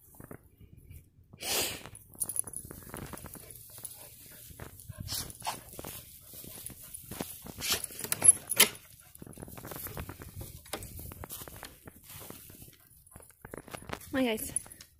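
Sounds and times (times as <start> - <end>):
dogs scuffling in grass: 2.7 - 8.2, 8.8 - 14.4.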